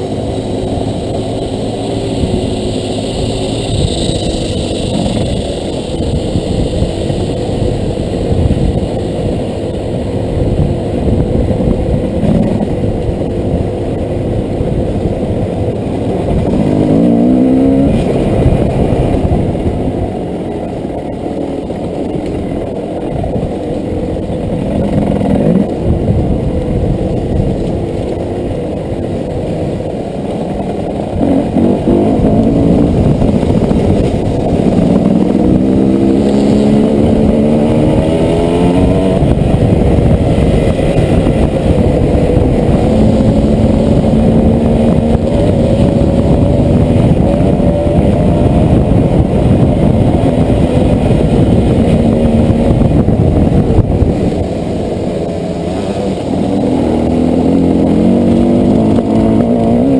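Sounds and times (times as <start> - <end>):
dirt bike engine revving: 15.8 - 22.2, 30.3 - 59.9.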